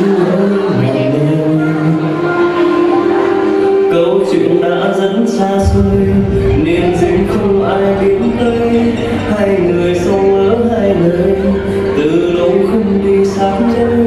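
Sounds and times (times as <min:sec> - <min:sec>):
person singing: 0:00.0 - 0:14.0
sustained instrumental tones: 0:05.6 - 0:10.3
deep bass: 0:05.6 - 0:10.6.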